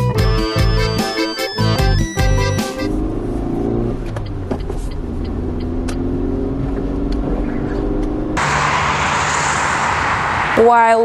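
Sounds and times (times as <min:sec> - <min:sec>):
car rumbling on the move: 0:02.5 - 0:11.0
highway traffic hiss: 0:08.4 - 0:11.0.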